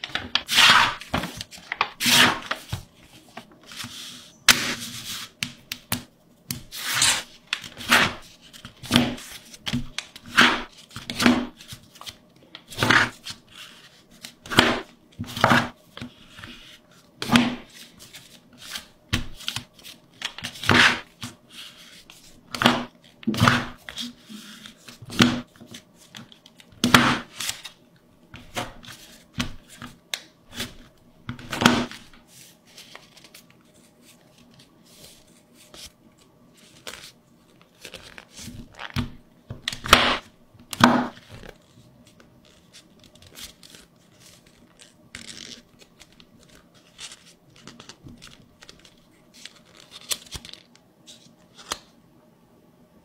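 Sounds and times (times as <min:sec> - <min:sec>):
paper crinkling and rustling: 0:00.0 - 0:17.0, 0:28.4 - 0:51.9.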